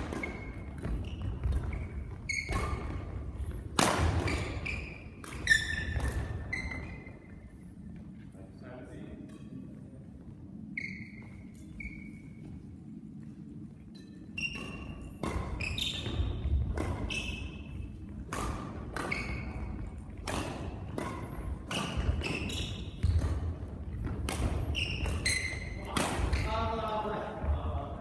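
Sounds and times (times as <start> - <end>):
rackets hitting shuttlecock: 0.0 - 7.4, 14.0 - 26.6
shoes squeaking on floor: 0.0 - 7.5, 10.6 - 12.7, 14.0 - 18.2, 18.8 - 20.2, 21.2 - 26.7.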